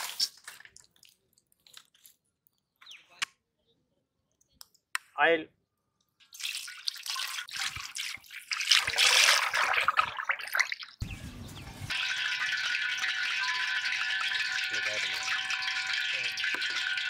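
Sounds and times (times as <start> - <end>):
oil pouring into metal pan: 6.3 - 11.0, 11.9 - 17.0.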